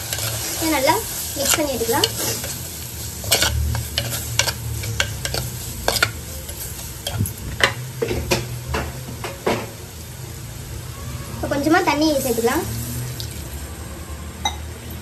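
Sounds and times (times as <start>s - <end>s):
faint sizzling: 0.0s - 15.0s
spoon scraping clay pot: 3.2s - 7.3s.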